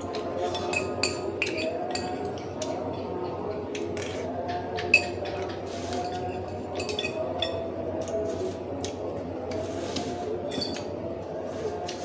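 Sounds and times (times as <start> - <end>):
cutlery clinking on ceramic bowl: 0.4 - 2.4, 4.9 - 7.6.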